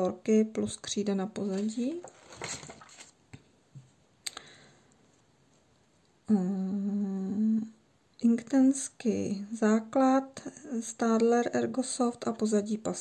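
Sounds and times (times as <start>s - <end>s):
paper page rustling: 1.4s - 3.2s
woman humming: 6.3s - 7.8s.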